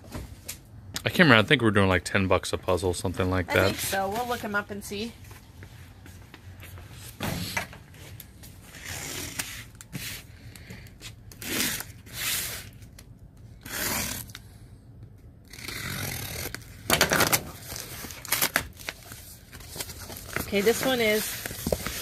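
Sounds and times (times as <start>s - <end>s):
cardboard scraping and rustling: 17.1s - 22.0s.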